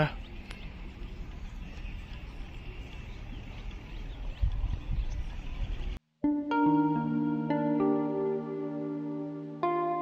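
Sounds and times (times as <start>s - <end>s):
soft instrumental music: 6.2s - 10.0s.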